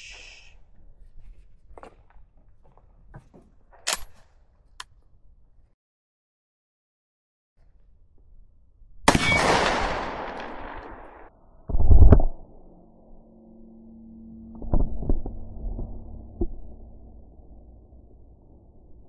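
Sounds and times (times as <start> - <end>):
gunshot with echo: 9.1 - 11.3.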